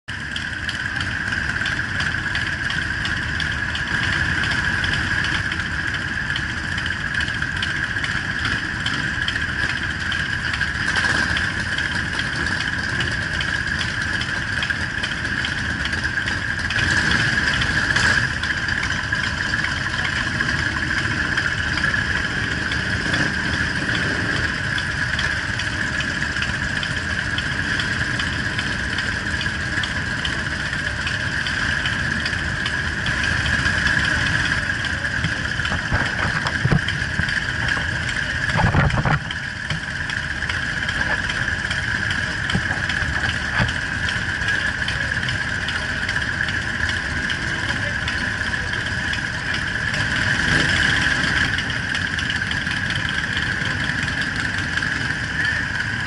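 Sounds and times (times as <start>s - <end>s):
motorcycle engines rumbling: 0.1s - 56.0s.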